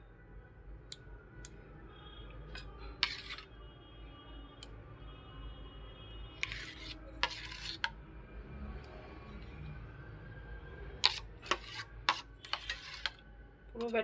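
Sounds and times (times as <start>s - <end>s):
metal spoon scraping steel bowl: 2.5s - 3.5s, 6.4s - 8.0s, 10.9s - 14.0s.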